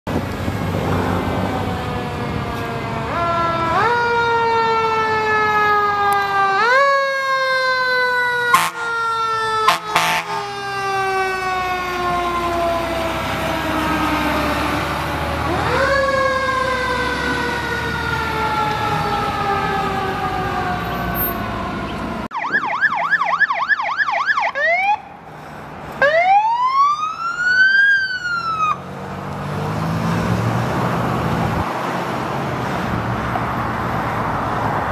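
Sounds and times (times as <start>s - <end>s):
emergency siren yelp and wail: 0.4s - 34.9s
sharp siren blasts: 1.5s - 25.2s, 26.0s - 28.9s
fire engine siren winding: 1.6s - 25.0s, 25.9s - 28.8s.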